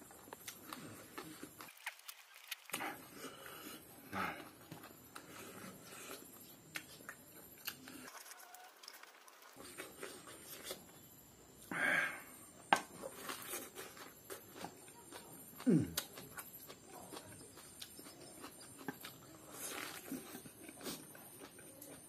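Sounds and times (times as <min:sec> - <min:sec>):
chewing smacks: 0:00.3 - 0:03.1, 0:13.2 - 0:22.0.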